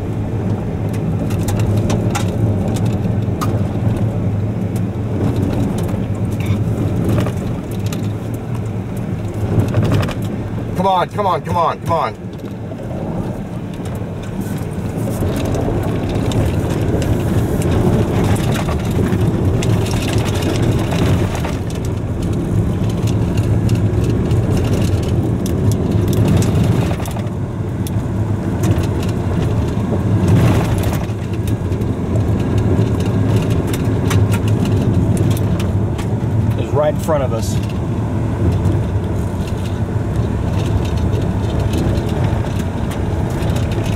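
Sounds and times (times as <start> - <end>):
road and engine rumble: 0.0 - 43.9
small stones ticking against car: 13.2 - 43.9.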